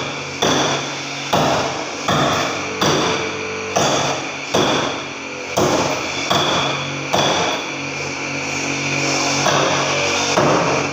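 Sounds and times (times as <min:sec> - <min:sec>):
hand tool striking plaster wall: 0:00.0 - 0:07.7, 0:09.4 - 0:10.9.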